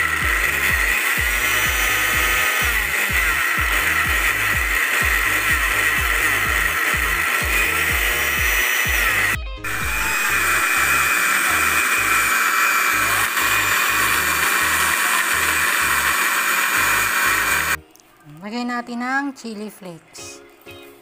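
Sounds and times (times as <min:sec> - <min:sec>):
music with a steady beat: 0:00.0 - 0:11.0
blender motor whine: 0:00.0 - 0:17.8.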